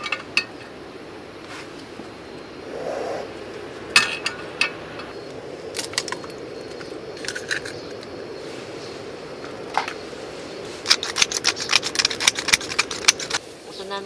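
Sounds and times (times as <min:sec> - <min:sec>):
steady hiss: 0:00.0 - 0:14.0
seasoning shaker rattling: 0:10.8 - 0:13.4.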